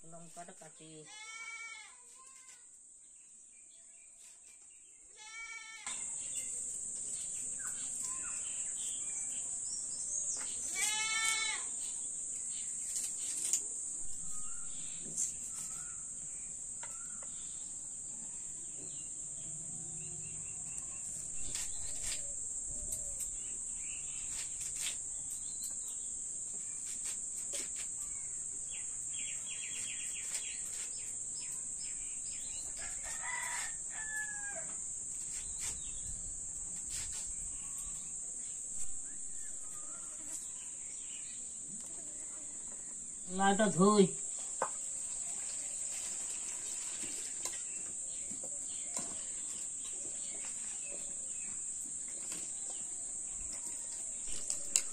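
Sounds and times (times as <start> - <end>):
goat bleating: 10.7 - 11.7.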